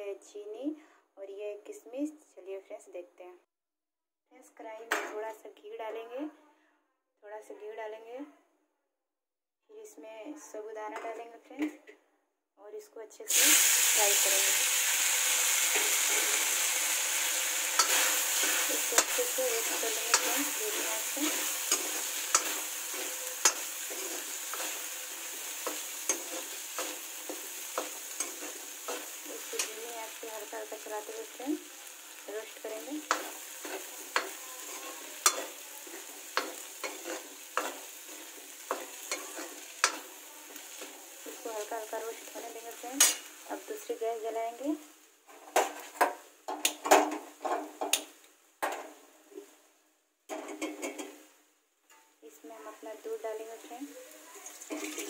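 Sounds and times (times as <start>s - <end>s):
sago sizzling in oil: 13.3s - 45.4s, 52.4s - 55.0s
spatula scraping metal pan: 15.6s - 29.8s, 33.0s - 41.0s, 54.4s - 55.0s.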